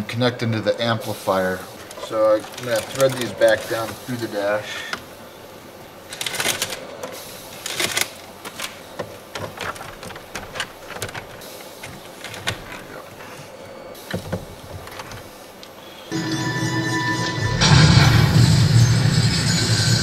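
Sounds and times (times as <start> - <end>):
cables and plastic parts rustling: 1.3 - 5.1, 5.9 - 15.8.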